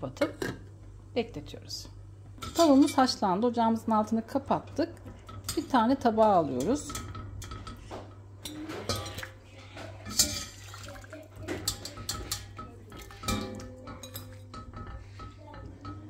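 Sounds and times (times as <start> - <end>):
wire skimmer clinking on pot: 10.0 - 16.0.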